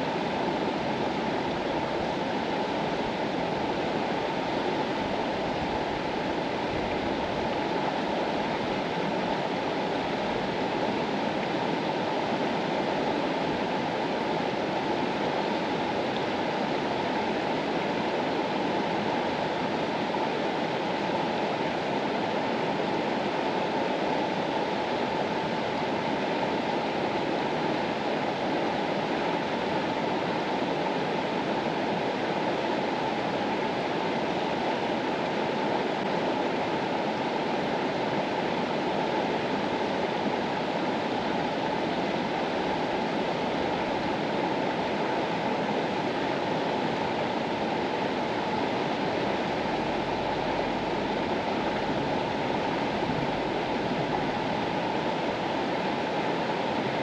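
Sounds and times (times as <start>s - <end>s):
river water rushing: 0.0s - 57.0s.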